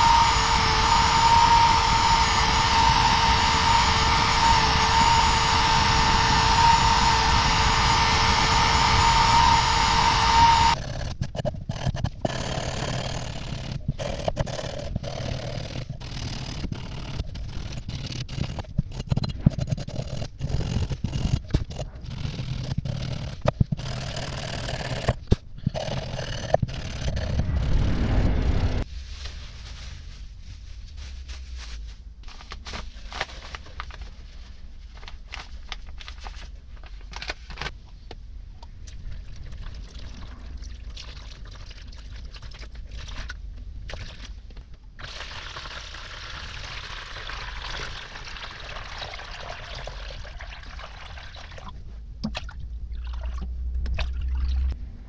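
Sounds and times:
power drill wire wheel whine: 0.0s - 11.2s.

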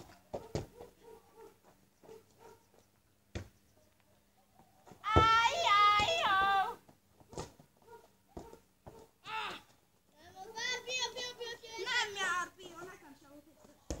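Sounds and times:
child shouting: 5.0s - 6.8s, 9.2s - 12.6s.

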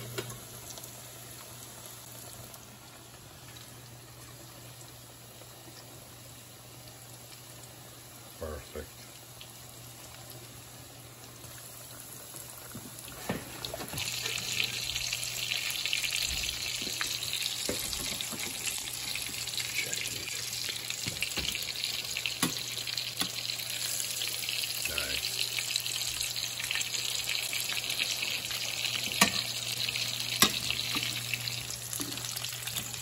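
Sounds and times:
cutlets sizzling in oil: 9.0s - 33.0s.

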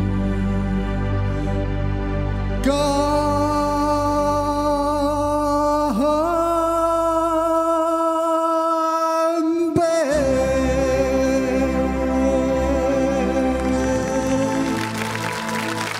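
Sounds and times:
man singing a slow ballad: 2.6s - 15.0s.

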